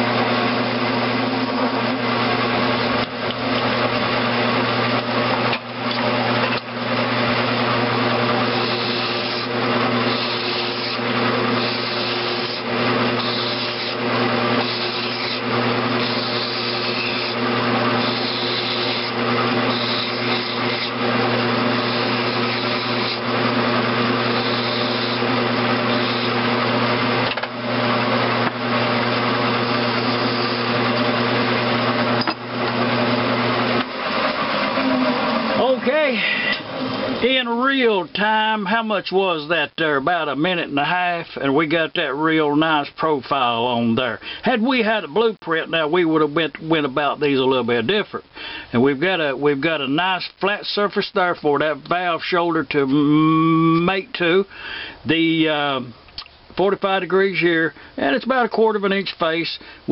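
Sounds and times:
lathe motor humming: 0.0s - 37.4s
tool bit cutting metal: 8.3s - 26.6s, 29.5s - 31.2s.

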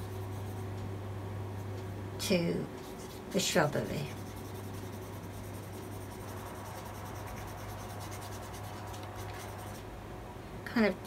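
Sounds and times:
steady low hum: 0.0s - 11.0s
paintbrush scratching paper: 2.8s - 9.8s.

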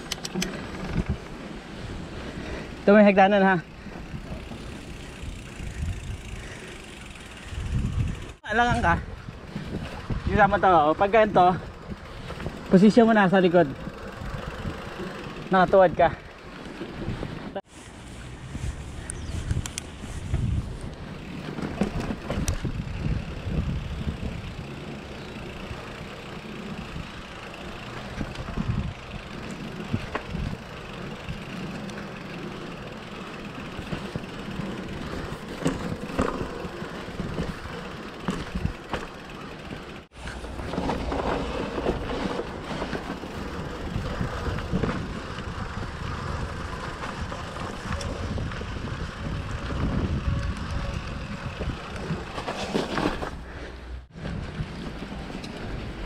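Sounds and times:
bike rattling on dirt trail: 0.0s - 56.0s
wind buffeting microphone: 0.7s - 2.6s, 3.8s - 12.8s, 18.2s - 31.7s, 40.5s - 52.5s, 54.1s - 56.0s.

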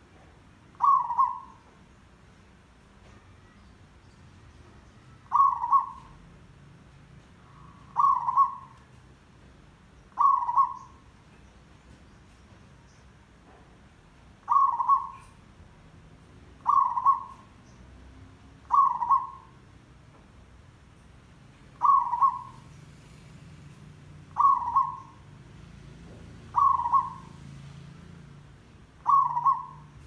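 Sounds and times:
dove cooing: 0.8s - 1.6s, 5.2s - 6.2s, 7.5s - 8.8s, 10.1s - 11.0s, 14.4s - 15.4s, 16.6s - 17.5s, 18.7s - 19.6s, 21.8s - 22.7s, 24.3s - 25.2s, 26.4s - 27.4s, 29.0s - 30.0s.

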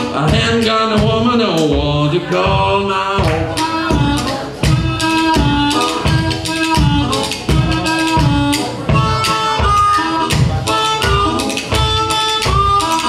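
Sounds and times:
bones clacking rhythm: 0.0s - 13.0s
low beats: 0.0s - 13.0s
blues harmonica: 3.2s - 13.0s.

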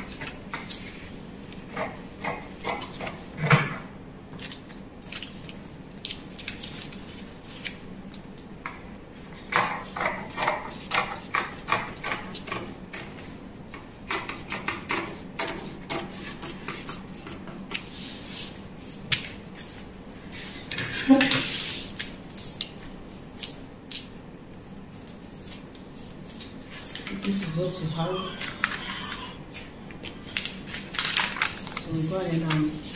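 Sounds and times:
fabric and paper rustling: 4.4s - 8.2s, 17.8s - 32.9s.

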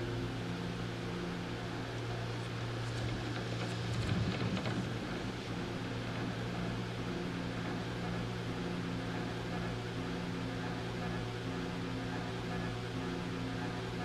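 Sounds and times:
steady low hum: 0.0s - 14.0s
small clicks and rustling: 2.8s - 5.3s.

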